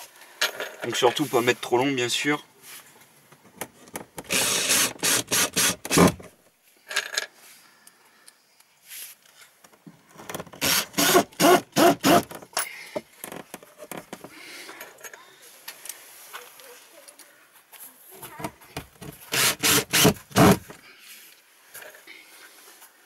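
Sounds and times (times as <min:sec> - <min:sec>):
drill driving screws into wood: 0:04.2 - 0:06.3, 0:10.3 - 0:12.4, 0:19.0 - 0:20.8.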